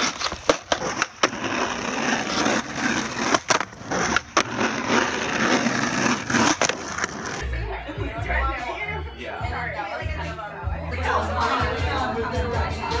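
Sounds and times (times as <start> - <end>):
skateboard clacking on ground: 0.0 - 7.4
skateboard wheels rolling on asphalt: 0.0 - 7.4.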